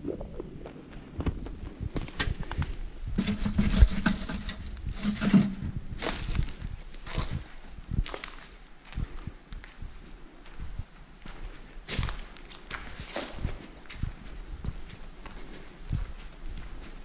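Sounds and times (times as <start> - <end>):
footsteps on dry leaves: 3.2 - 8.5.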